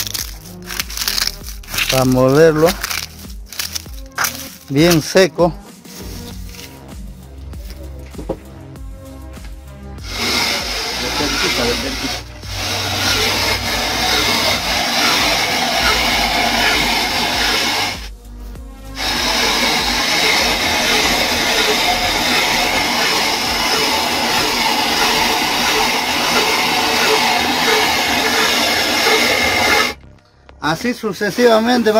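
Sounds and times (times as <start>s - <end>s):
hand-cranked mill grinding eggshells: 0.0s - 5.1s, 10.0s - 18.1s, 19.0s - 30.0s
background music: 0.0s - 31.9s.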